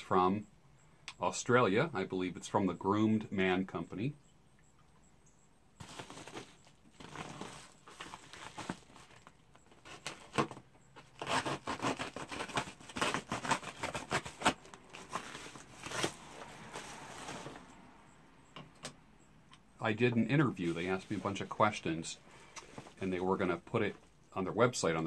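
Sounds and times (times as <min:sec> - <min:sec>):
mailing satchel rustling: 0:05.8 - 0:10.4, 0:12.2 - 0:17.7
satchel tearing open: 0:09.8 - 0:17.6.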